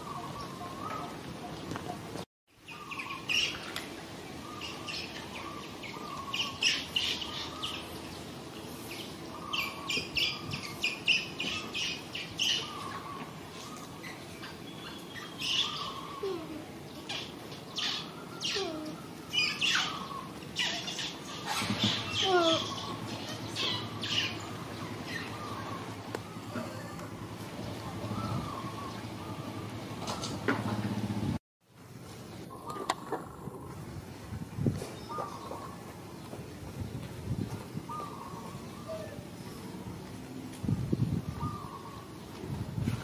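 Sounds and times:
animal chirps and squeaks: 20.6s - 24.4s.

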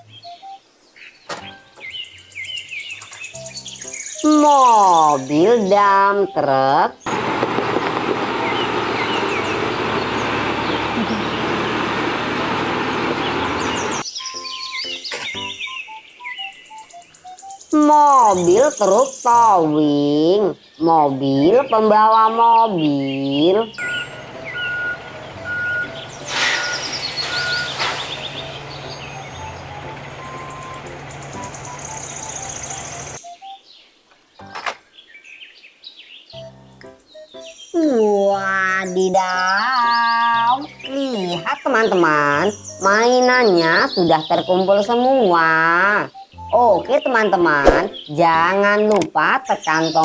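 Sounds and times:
birds chirping: 0.0s - 50.0s
truck engine and tyres on gravel: 7.1s - 14.0s, 23.8s - 33.2s
high chirps: 8.2s - 19.3s, 23.7s - 33.7s
bursts of air hiss: 26.1s - 28.4s
short high beeps: 26.6s - 27.8s.

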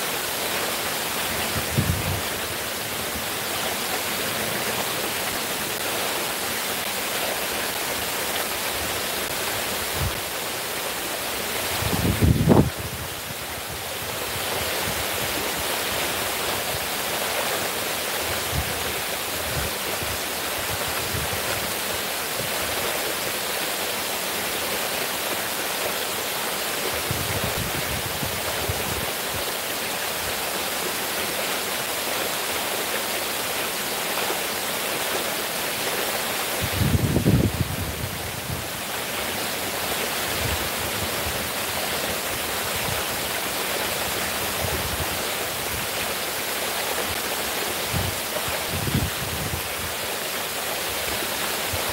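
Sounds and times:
water cascading into pool: 0.0s - 51.9s.

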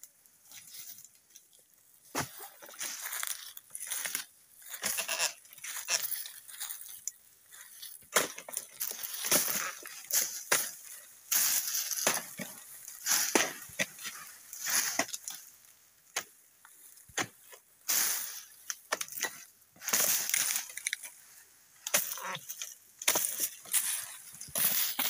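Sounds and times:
rustling of falling fronds: 0.4s - 25.0s
chisel chopping palm fronds: 8.1s - 10.8s, 11.4s - 12.6s, 13.2s - 14.0s, 17.1s - 17.5s, 21.9s - 22.2s, 23.0s - 23.5s.

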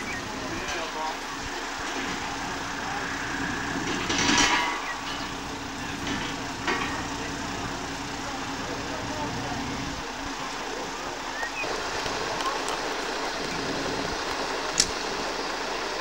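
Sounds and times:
rush of noise: 0.0s - 15.9s
diesel engine running: 0.0s - 16.0s
sharp click: 14.8s - 15.0s.

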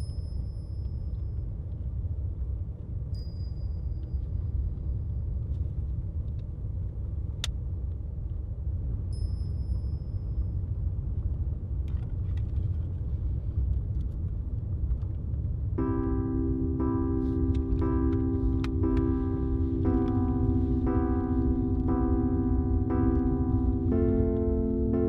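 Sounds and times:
thin high tone: 15.8s - 25.0s.

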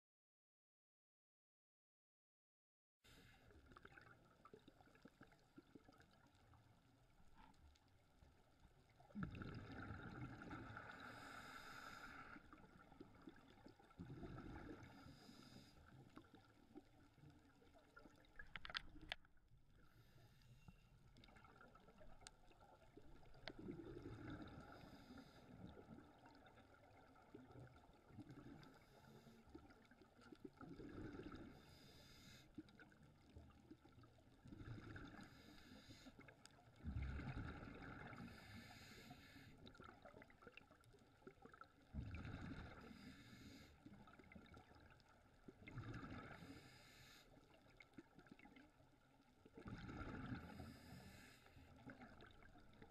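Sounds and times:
exhaled bubbles: 9.0s - 11.4s, 12.3s - 15.2s, 21.2s - 28.9s, 29.6s - 31.8s, 32.7s - 35.5s, 36.8s - 38.6s, 39.7s - 43.1s, 44.0s - 46.6s, 49.6s - 51.0s
diver breathing through regulator: 10.9s - 12.5s, 14.8s - 15.9s, 31.5s - 32.5s, 35.2s - 36.2s, 38.2s - 39.6s, 42.8s - 43.8s, 46.3s - 47.4s, 50.4s - 51.8s.

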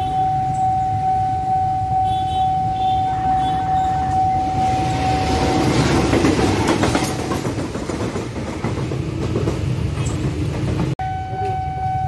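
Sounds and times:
crossing warning tone: 0.0s - 6.7s, 11.0s - 12.0s
train wheels clacking on rails: 4.8s - 11.5s.

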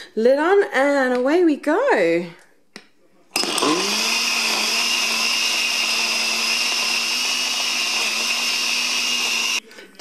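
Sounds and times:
blender blending ice: 3.4s - 9.6s.

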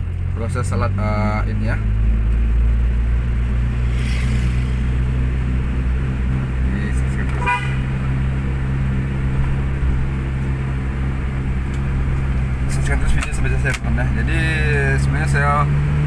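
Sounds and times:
vehicle engine and road hum: 0.0s - 16.0s
car horn toot: 7.3s - 8.0s.

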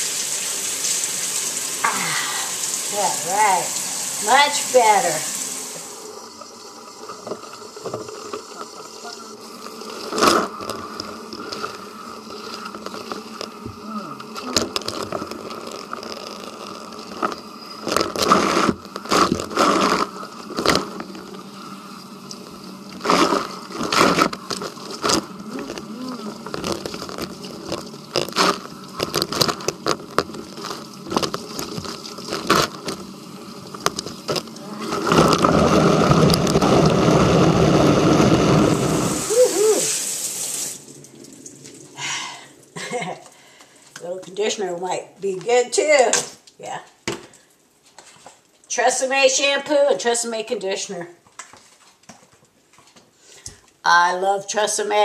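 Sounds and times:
steady hum: 1.7s - 45.2s
hands scrubbing lather through hair: 1.9s - 5.8s.

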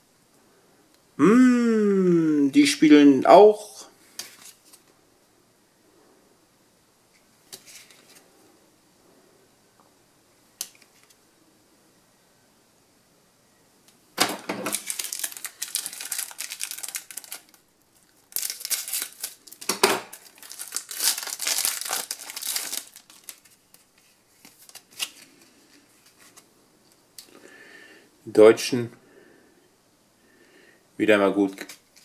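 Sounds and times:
foil pack tearing and crinkling: 14.6s - 23.6s.

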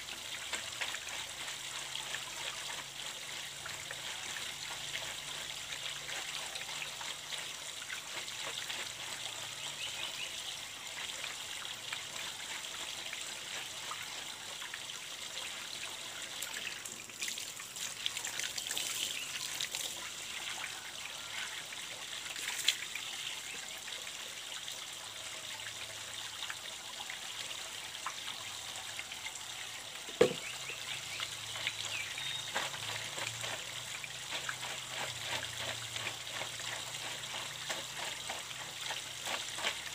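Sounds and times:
water trickling from pipe: 0.0s - 39.9s
sharp knock: 30.2s - 30.5s.

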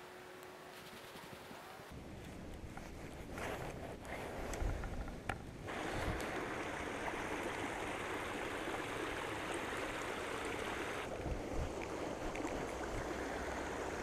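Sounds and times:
creek running over stones: 5.7s - 14.0s.

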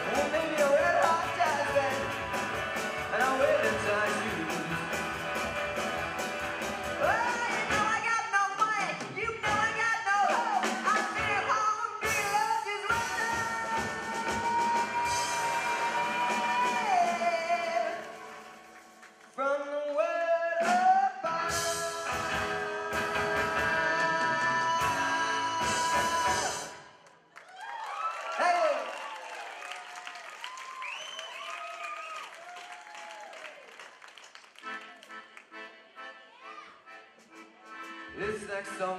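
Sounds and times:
person singing: 0.0s - 2.2s, 3.0s - 5.0s, 7.0s - 18.4s, 19.4s - 26.9s
live band playing: 0.0s - 19.8s, 20.5s - 27.0s, 34.6s - 38.9s.

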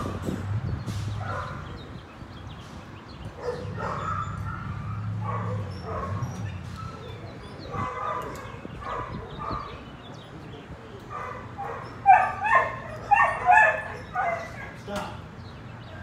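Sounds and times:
dog barking and yipping: 3.4s - 9.8s, 11.1s - 14.8s.

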